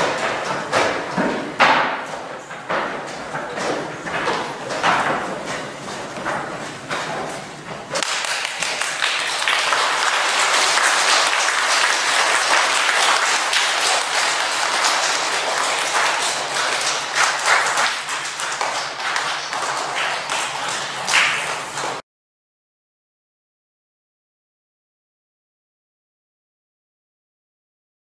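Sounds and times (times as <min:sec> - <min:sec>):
children applauding: 0:08.0 - 0:22.0.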